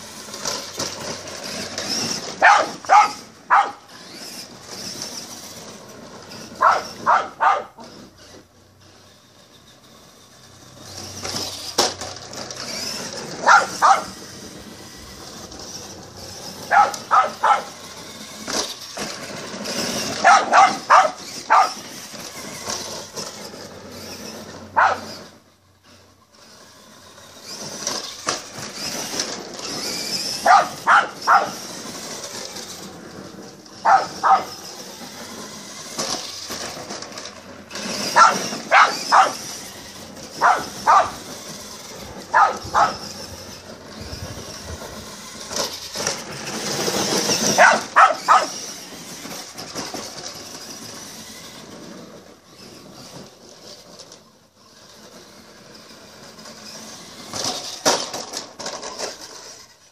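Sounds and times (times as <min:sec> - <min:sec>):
rc truck whining over gravel: 0:00.0 - 0:59.9
dog barking: 0:02.4 - 0:03.8, 0:06.6 - 0:07.8, 0:13.4 - 0:14.1, 0:16.7 - 0:17.7, 0:20.2 - 0:21.8, 0:24.8 - 0:25.1, 0:30.4 - 0:31.6, 0:33.8 - 0:34.5, 0:38.2 - 0:39.4, 0:40.4 - 0:41.2, 0:42.3 - 0:43.0, 0:47.6 - 0:48.6.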